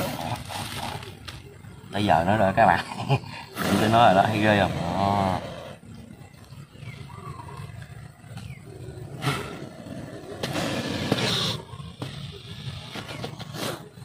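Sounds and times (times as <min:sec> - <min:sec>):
cobra hissing: 0:02.8 - 0:06.0, 0:09.1 - 0:14.0.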